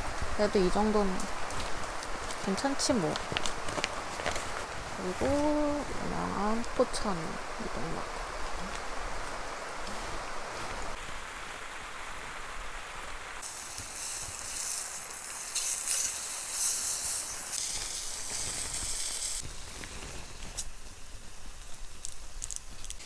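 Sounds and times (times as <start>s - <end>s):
heavy rain on a tent: 0.0s - 23.0s
meat sizzling in a frying pan: 13.4s - 23.0s.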